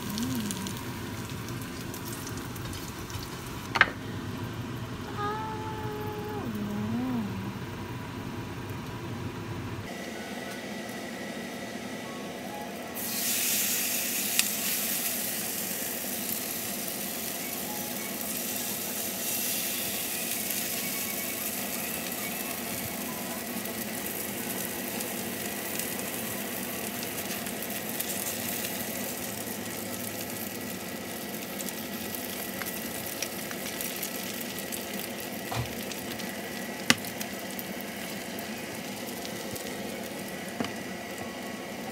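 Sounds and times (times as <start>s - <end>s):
food sizzling in oil: 0.0s - 3.9s, 13.0s - 41.8s.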